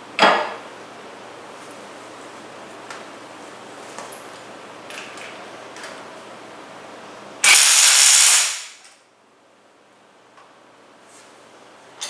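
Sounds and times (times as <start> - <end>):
impact wrench hammering: 7.4 - 8.8.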